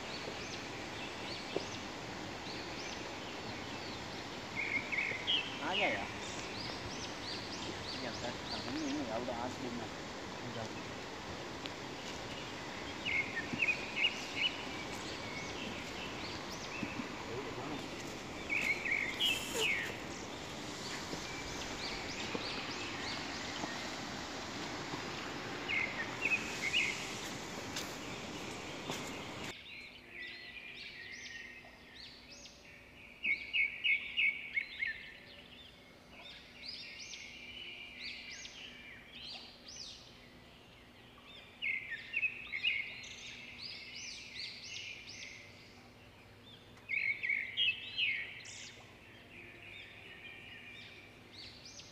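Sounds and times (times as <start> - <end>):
steady hiss: 0.0 - 29.6
birds chirping: 0.0 - 51.9.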